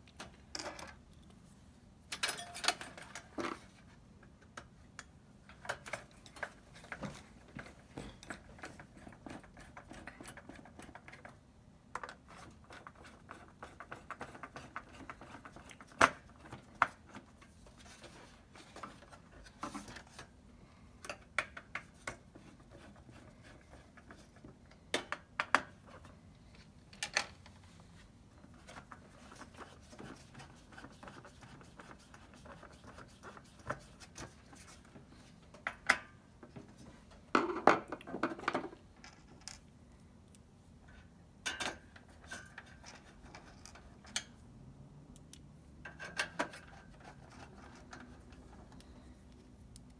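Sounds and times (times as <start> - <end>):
screwdriver scraping on metal: 45.9 - 48.6.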